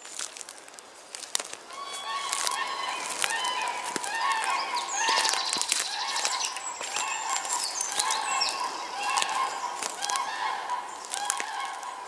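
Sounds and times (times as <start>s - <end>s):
footsteps through dry grass: 0.0s - 12.0s
geese honking: 1.7s - 12.0s
songbirds chirping and whistling: 1.7s - 12.0s.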